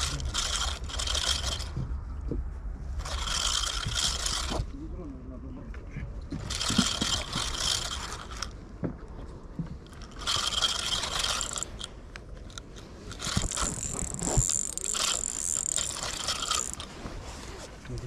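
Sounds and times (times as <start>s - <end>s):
fishing reel gears whirring: 0.0s - 1.9s, 3.0s - 4.7s, 6.3s - 8.6s, 9.8s - 17.7s.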